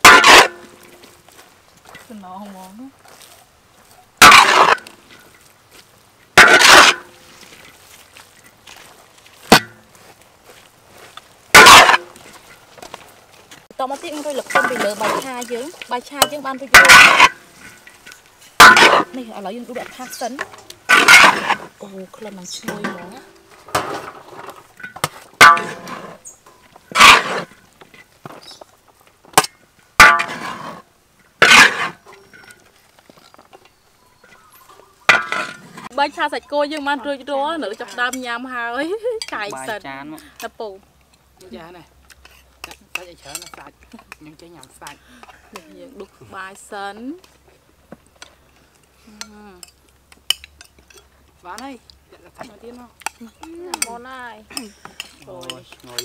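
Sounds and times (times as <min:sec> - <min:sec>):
metal clank: 0:00.0 - 0:00.8, 0:04.2 - 0:05.2, 0:06.4 - 0:07.2, 0:09.5 - 0:09.8, 0:11.5 - 0:12.2, 0:16.2 - 0:19.2, 0:19.8 - 0:21.7, 0:22.6 - 0:27.6, 0:29.4 - 0:30.7, 0:34.2 - 0:35.9
metal spatula scraping a wok: 0:04.2 - 0:05.2, 0:11.5 - 0:12.2, 0:14.0 - 0:21.8, 0:23.7 - 0:27.6, 0:30.0 - 0:30.8, 0:31.4 - 0:32.6
metal spatula clanging on wok: 0:42.6 - 0:43.7, 0:53.0 - 0:56.0.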